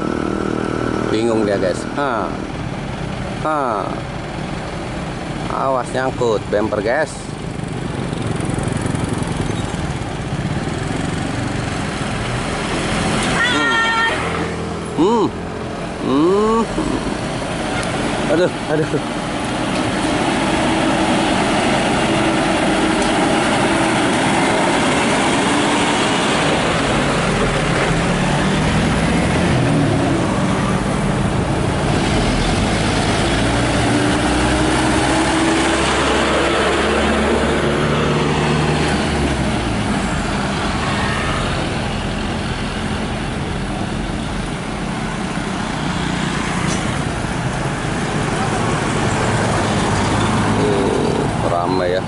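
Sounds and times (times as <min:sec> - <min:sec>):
diesel trucks passing: 0:00.0 - 0:52.0.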